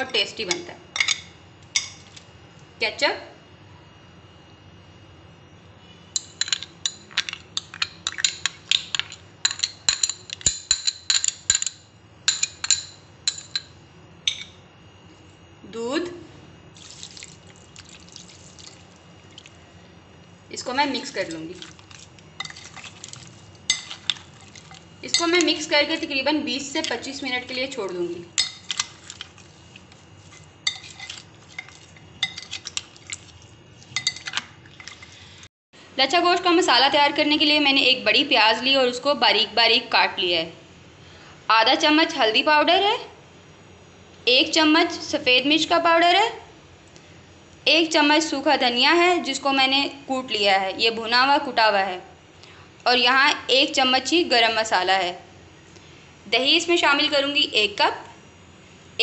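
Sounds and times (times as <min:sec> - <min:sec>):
metal spoon clinking on glass bowls: 0:06.2 - 0:14.5, 0:23.7 - 0:25.5, 0:28.4 - 0:29.2, 0:30.6 - 0:32.8, 0:34.0 - 0:35.0.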